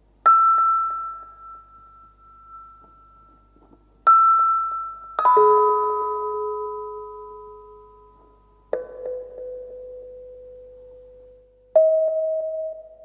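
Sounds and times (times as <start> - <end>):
bell-like chime notes: 0.3 - 10.6.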